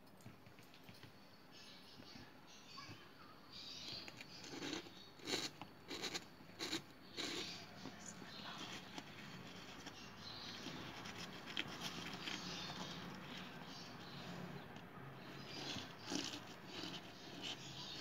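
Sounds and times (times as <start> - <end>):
eggs clicking and knocking: 3.8 - 18.0.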